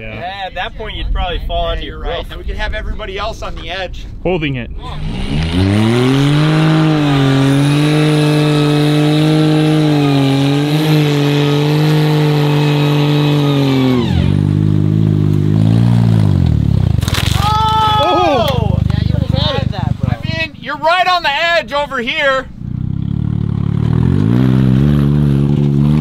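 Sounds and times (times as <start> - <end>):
small car engine revving: 4.8 - 16.8, 22.6 - 26.0.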